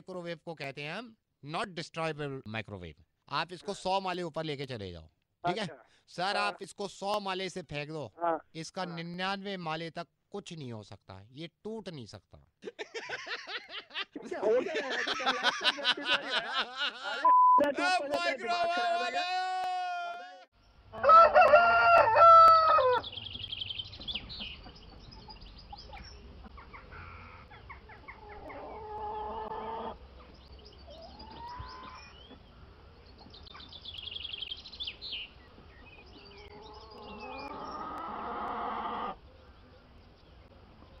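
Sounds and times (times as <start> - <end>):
rooster crowing: 21.0 - 23.1
birds chirping: 22.7 - 41.0
chickens clucking: 23.4 - 32.5, 35.6 - 39.3.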